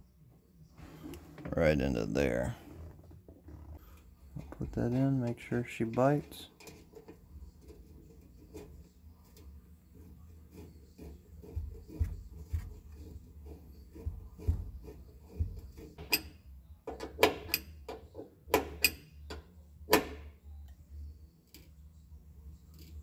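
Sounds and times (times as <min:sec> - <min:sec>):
steady low hum: 0:00.0 - 0:23.0
soft metal taps and scrapes: 0:03.3 - 0:19.5, 0:21.4 - 0:21.8, 0:22.6 - 0:23.0.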